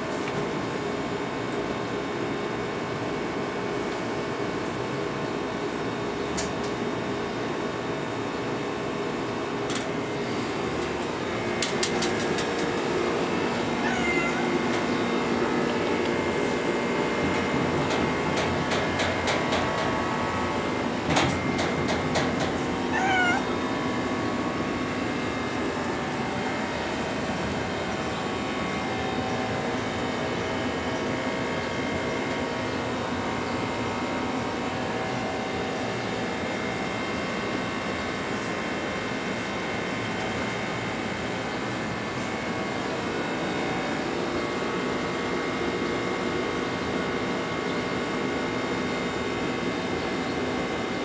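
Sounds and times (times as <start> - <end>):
steady background hum: 0.0 - 51.0
cat meowing: 13.7 - 14.7, 22.9 - 23.5.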